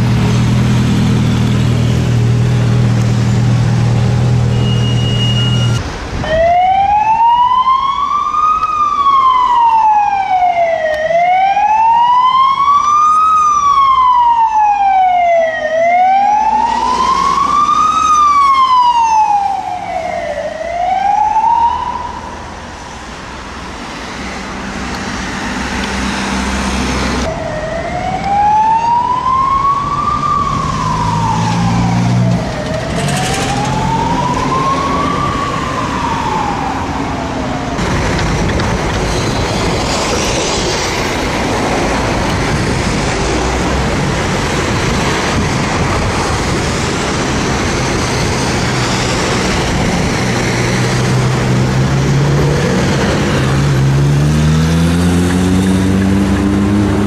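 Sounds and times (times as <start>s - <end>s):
city traffic: 0.0s - 57.0s
emergency siren wailing: 1.6s - 22.7s, 25.4s - 37.9s.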